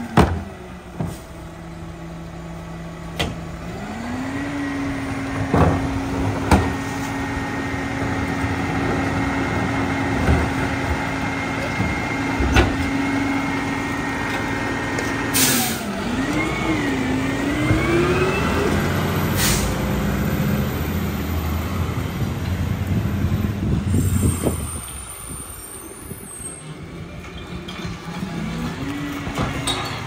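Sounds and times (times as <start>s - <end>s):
diesel truck engine: 0.0s - 30.0s
air brakes hissing: 15.3s - 15.9s, 19.2s - 19.8s, 23.9s - 26.8s.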